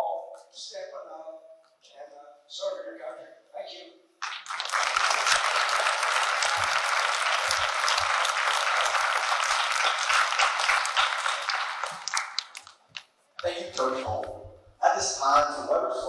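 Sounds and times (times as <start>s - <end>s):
audience applauding: 4.2s - 12.8s.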